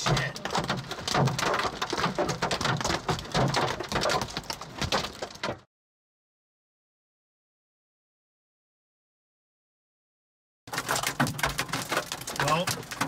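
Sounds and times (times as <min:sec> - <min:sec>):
hail and rain pounding on a car: 0:00.0 - 0:05.7, 0:10.7 - 0:13.0.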